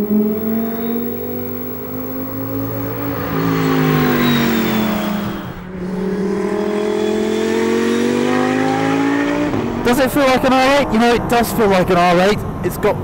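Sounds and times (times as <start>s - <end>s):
race car engine revving: 0.0s - 11.5s.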